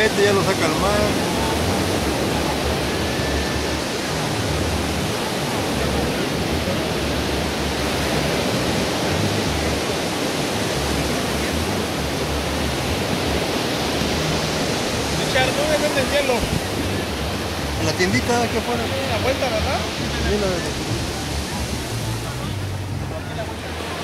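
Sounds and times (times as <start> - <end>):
ocean surf on beach: 0.0 - 24.0
wind buffeting microphone: 1.1 - 17.8.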